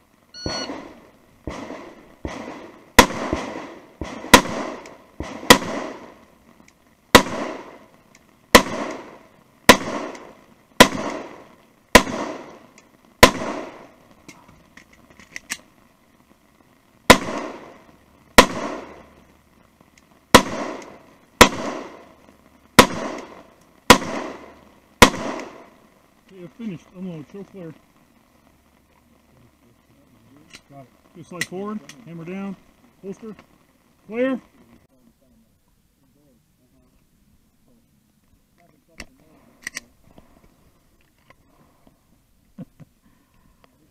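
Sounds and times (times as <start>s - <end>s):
pistol shots with echo: 0.4s - 6.2s, 7.1s - 7.8s, 8.5s - 12.6s, 13.2s - 13.8s, 17.1s - 17.8s, 18.4s - 19.0s, 20.3s - 22.1s, 22.8s - 25.7s
magazine change clicks: 14.8s - 15.6s.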